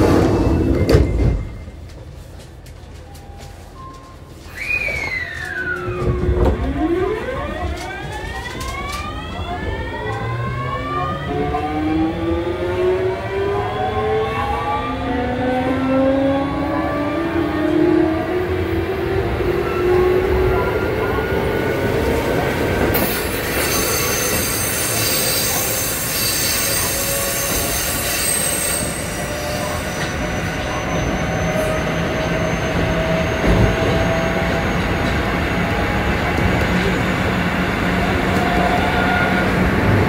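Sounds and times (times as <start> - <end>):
wheels rumbling on rails: 15.6 - 40.0
high-pitched wheel squeal: 23.6 - 35.0.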